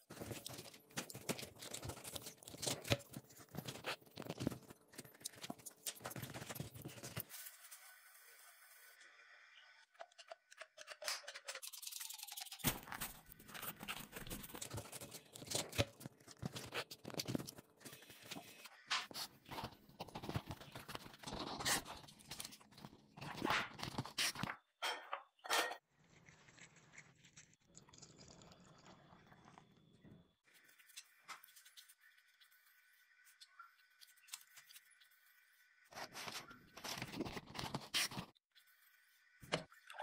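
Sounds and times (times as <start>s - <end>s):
gloved hands rustling and scraping: 0.0s - 8.7s, 10.0s - 24.5s, 30.5s - 39.4s.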